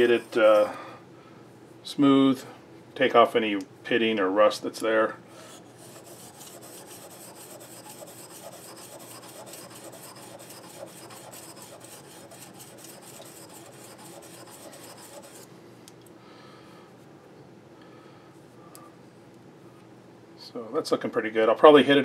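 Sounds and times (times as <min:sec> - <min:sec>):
blade scraping on sharpening stone: 0:05.8 - 0:15.5.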